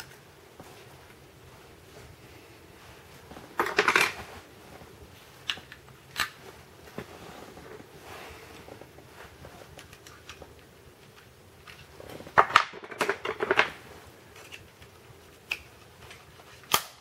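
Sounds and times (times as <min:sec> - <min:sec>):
soft rustle: 0:00.0 - 0:12.4, 0:13.7 - 0:16.6.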